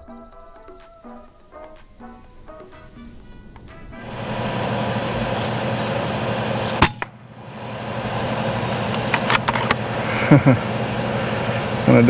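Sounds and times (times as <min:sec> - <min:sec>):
air rifle shot: 0:06.7 - 0:07.2
sharp clicks: 0:08.9 - 0:09.8.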